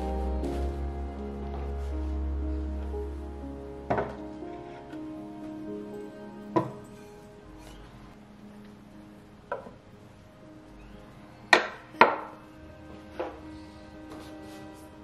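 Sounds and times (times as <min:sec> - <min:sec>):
soft background music: 0:00.0 - 0:15.0.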